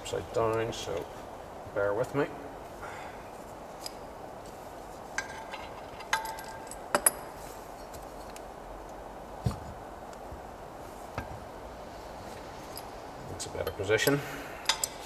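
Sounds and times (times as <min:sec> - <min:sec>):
metallic clinks and taps: 0:05.2 - 0:08.4, 0:13.6 - 0:15.0.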